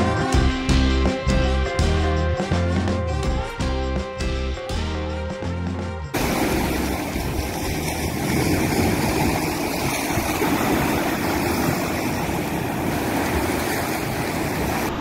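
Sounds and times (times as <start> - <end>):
waves breaking on sandy beach: 6.2 - 15.0.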